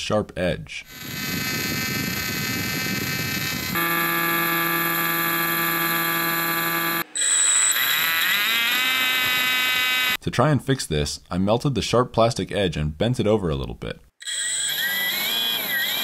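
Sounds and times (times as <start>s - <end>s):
blower impeller whining: 0.9s - 10.2s.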